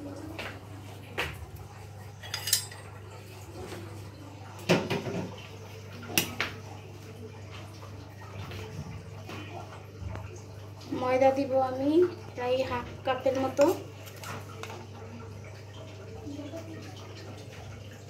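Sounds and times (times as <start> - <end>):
metal spoon clinking against dishes: 2.2 - 2.9.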